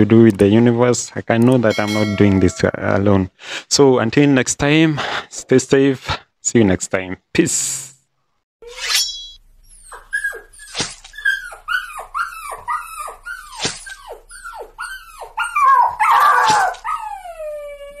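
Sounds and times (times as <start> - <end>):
dog whining: 9.6 - 18.0.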